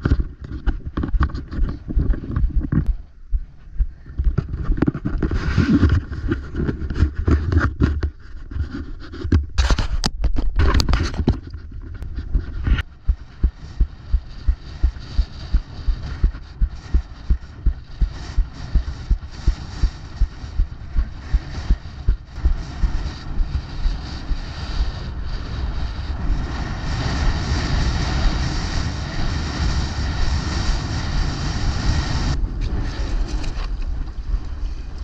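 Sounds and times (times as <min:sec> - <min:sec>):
scraping and rustling: 0:04.0 - 0:22.0.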